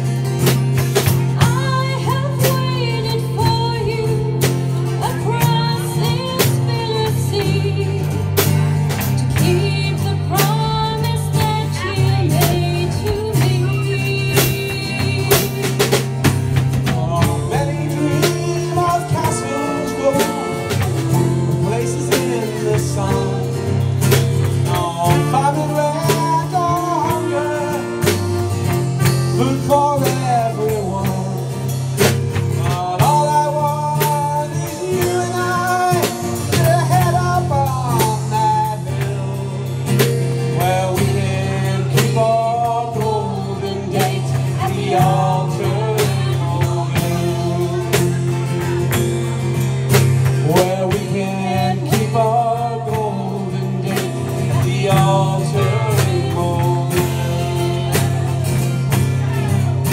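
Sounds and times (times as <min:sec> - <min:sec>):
live band playing: 0:00.0 - 0:59.9
saxophone melody: 0:17.7 - 0:23.6.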